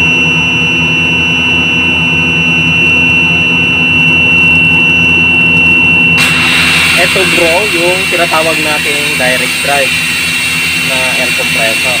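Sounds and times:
machinery humming: 2.8s - 12.0s
high-pitched tone: 4.3s - 12.0s.

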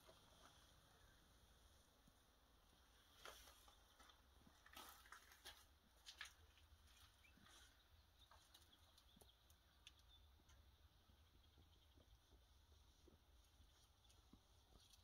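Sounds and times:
faint clicks: 8.4s - 10.7s.

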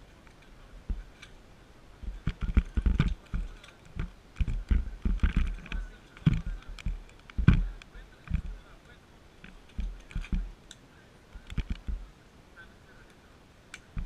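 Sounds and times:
muffled knocks and bumps: 0.8s - 1.1s, 2.0s - 8.6s
sharp clicks: 9.4s - 12.0s.

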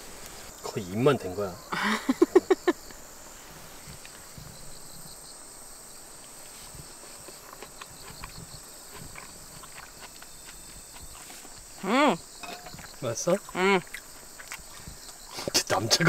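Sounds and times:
crickets chirping: 0.0s - 16.0s
person laughing: 1.7s - 2.8s.

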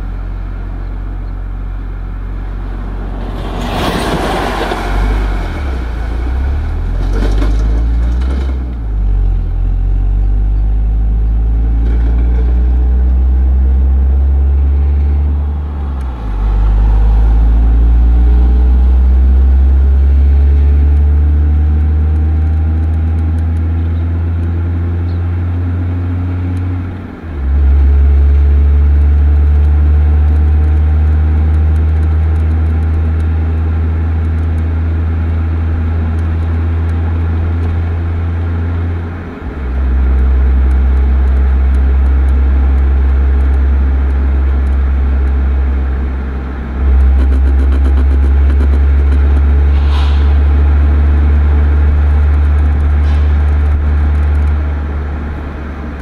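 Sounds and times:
car exhaust droning: 0.0s - 56.0s.

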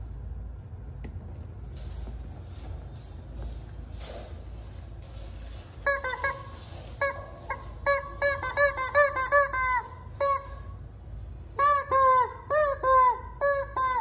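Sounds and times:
rubber chicken toy squeaking: 5.8s - 10.8s, 11.5s - 14.0s.

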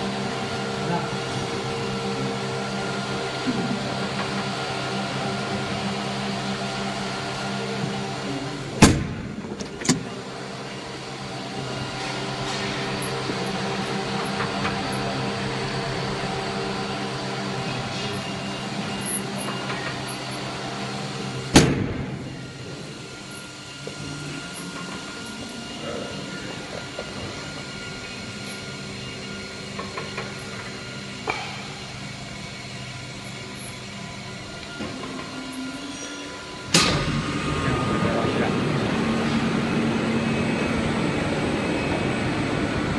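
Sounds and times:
bottling machine motors humming: 0.0s - 42.9s.

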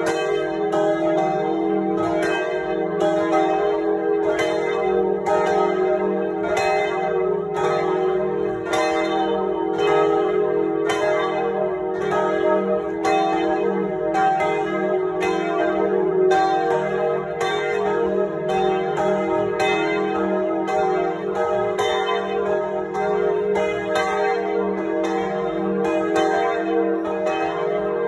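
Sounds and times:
church bells ringing: 0.0s - 28.0s.

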